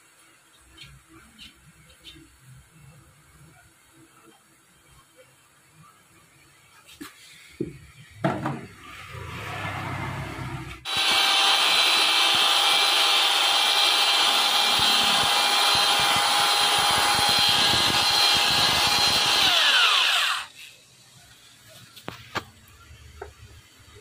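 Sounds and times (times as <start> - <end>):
electric drill boring metal: 10.8 - 20.6.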